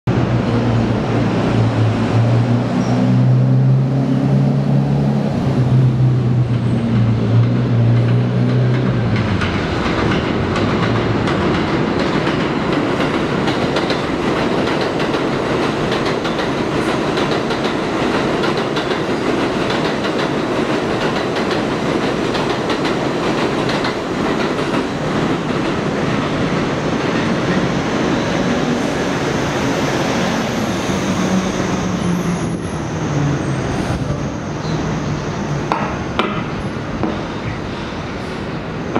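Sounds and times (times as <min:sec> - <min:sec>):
train hum with steady tones: 0:00.1 - 0:38.9
train wheels clacking on rails: 0:06.4 - 0:30.5, 0:35.6 - 0:37.4.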